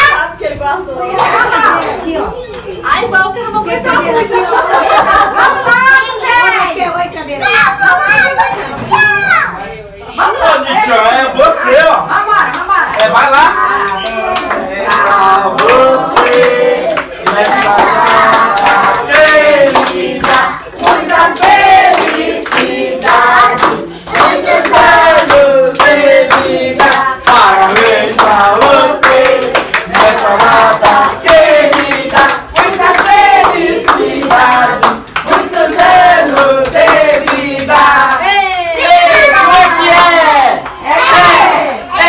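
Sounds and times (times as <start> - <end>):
group of people singing: 13.4 - 42.0.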